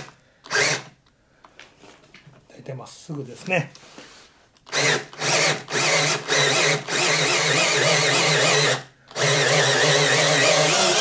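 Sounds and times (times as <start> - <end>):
electric drill boring wood: 0.0 - 0.9, 4.7 - 11.0.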